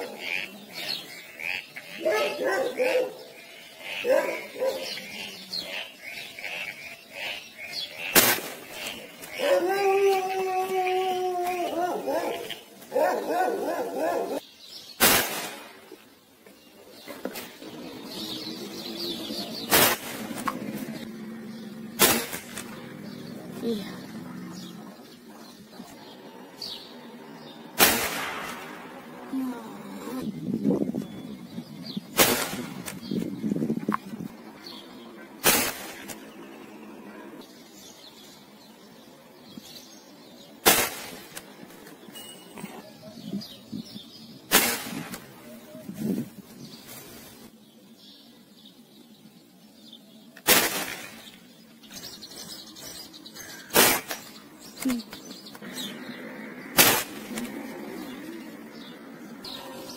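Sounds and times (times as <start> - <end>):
air rifle shots: 15.0 - 15.9, 19.6 - 20.8, 22.0 - 22.8, 27.8 - 29.0, 32.1 - 33.3, 35.4 - 36.4, 40.6 - 41.5, 44.5 - 45.4, 50.4 - 51.3, 56.8 - 57.5
rifle shots: 22.0 - 22.7, 27.8 - 28.9, 50.5 - 51.2.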